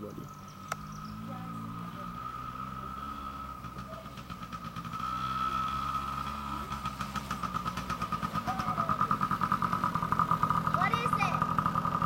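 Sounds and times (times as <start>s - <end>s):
dirt bike engine: 0.0s - 12.0s.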